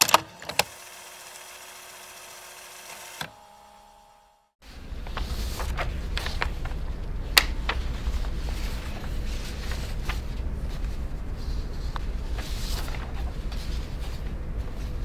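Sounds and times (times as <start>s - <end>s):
low room hum: 3.3s - 15.0s
paper crackling and rustling: 4.6s - 15.0s
sharp paper snap: 5.1s - 8.2s.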